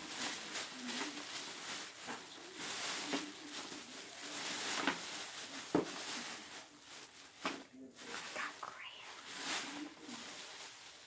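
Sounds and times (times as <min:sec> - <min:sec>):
plastic bag rustling: 0:00.0 - 0:11.0.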